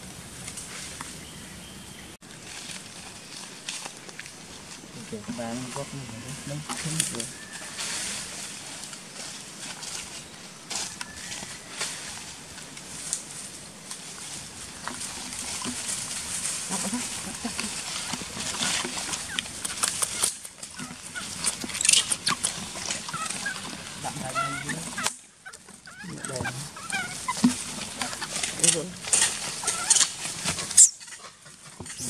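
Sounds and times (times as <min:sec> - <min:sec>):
rustling of dry leaves: 0:00.0 - 0:32.0
monkeys grunting and squealing: 0:15.4 - 0:31.3.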